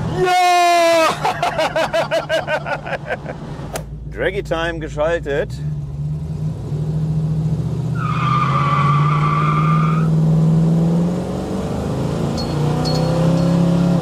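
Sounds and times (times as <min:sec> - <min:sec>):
car engine accelerating: 0:02.6 - 0:14.0
tyres squealing: 0:08.0 - 0:10.1.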